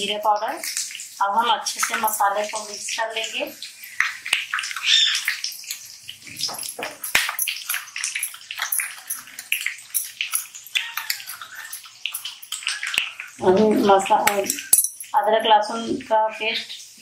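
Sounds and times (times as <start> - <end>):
metal spoon scraping steel bowl: 6.6 - 13.0.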